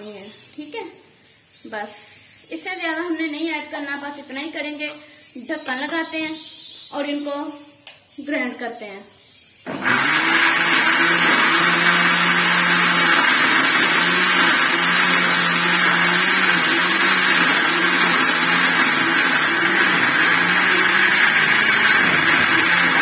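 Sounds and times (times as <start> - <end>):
electric blender grinding: 9.7 - 23.0.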